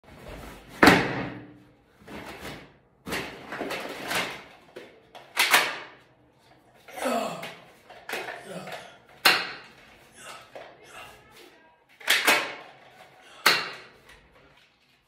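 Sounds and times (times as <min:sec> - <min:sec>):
plastic toys knocking and rattling: 0:03.1 - 0:06.0, 0:06.8 - 0:10.8, 0:11.9 - 0:14.8
sharp plastic clack: 0:05.2 - 0:06.0, 0:12.0 - 0:12.7.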